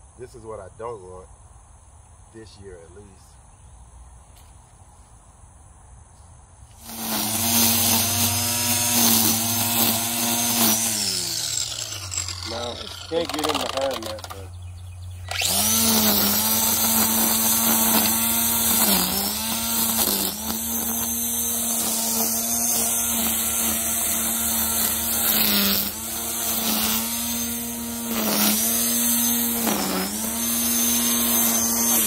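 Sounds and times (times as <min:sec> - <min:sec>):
string trimmer cutting grass: 0:06.6 - 0:32.0.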